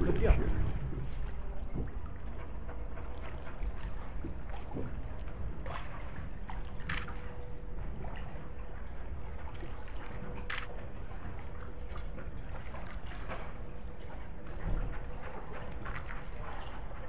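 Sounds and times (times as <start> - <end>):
low rumble: 0.0 - 12.0
water lapping around a boat: 0.0 - 17.0
sharp water splashes: 5.6 - 7.4, 9.4 - 10.9.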